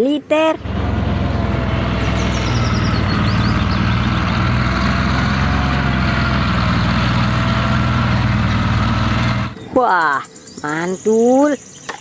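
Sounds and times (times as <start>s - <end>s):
tank engine running: 0.4s - 9.7s.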